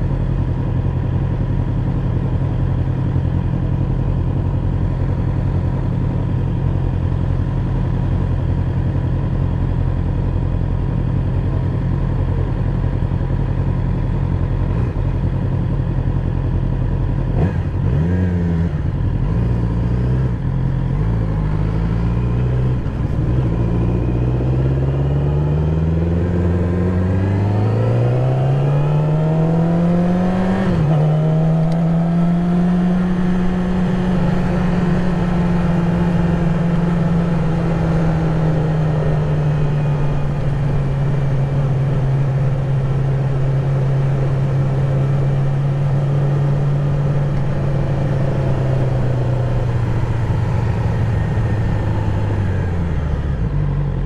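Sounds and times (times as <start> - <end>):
motorcycle engine revving: 17.1 - 54.0.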